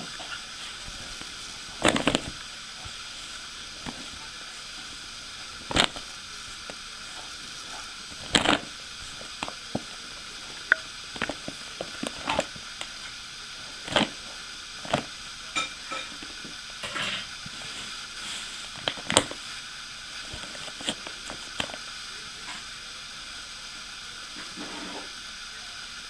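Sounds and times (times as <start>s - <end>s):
plastic bag crinkling: 0.0s - 15.2s, 17.4s - 19.6s, 20.2s - 21.8s
steady hiss: 0.0s - 26.0s.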